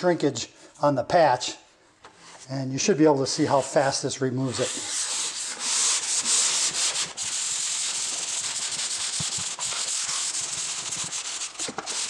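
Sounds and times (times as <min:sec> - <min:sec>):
hand sanding rasping: 0:03.4 - 0:12.0.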